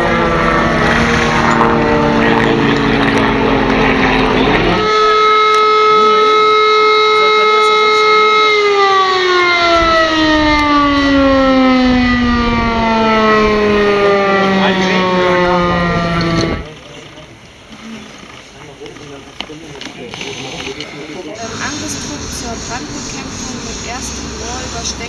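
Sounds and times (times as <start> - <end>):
rumble: 0.0 - 4.9
motor siren wailing: 0.0 - 16.7.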